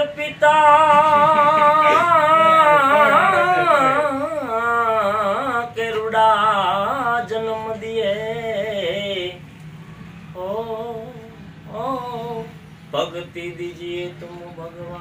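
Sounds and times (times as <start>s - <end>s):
man singing unaccompanied: 0.0s - 9.5s, 10.3s - 15.0s.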